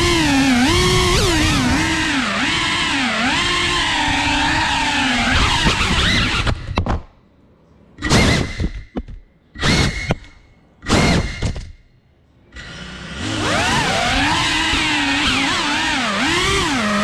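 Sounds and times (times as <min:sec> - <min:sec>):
drone motors whining: 0:00.0 - 0:06.8, 0:12.5 - 0:17.0.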